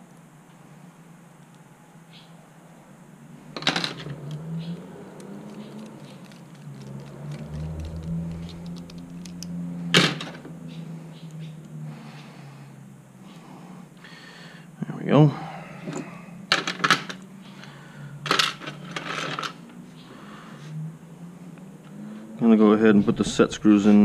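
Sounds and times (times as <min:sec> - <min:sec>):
small metal parts clicking: 0:03.6 - 0:09.6.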